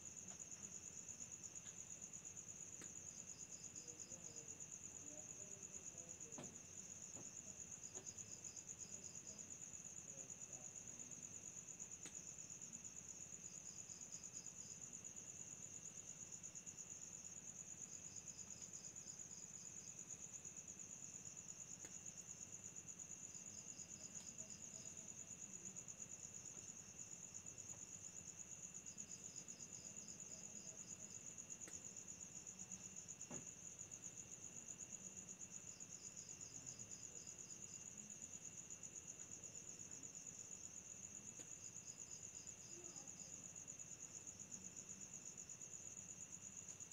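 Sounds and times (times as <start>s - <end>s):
insect rapid chirps: 11.4s - 46.9s.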